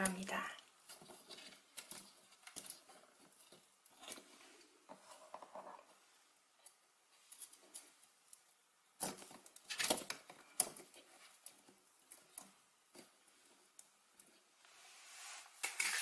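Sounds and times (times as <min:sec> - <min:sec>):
scraping and knocks: 0:00.8 - 0:06.0, 0:15.4 - 0:16.0.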